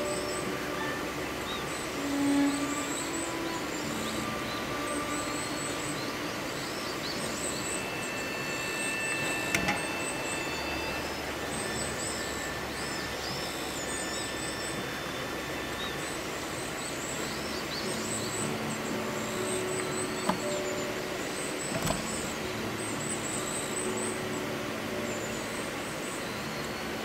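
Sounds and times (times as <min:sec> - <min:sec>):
bird chirps: 0:00.0 - 0:26.9
rushing background noise: 0:00.0 - 0:27.0.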